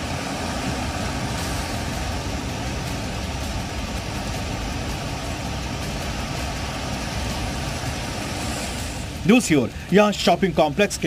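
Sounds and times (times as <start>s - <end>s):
heavy rain and water noise: 0.0s - 11.0s
vehicle engines: 0.0s - 11.0s.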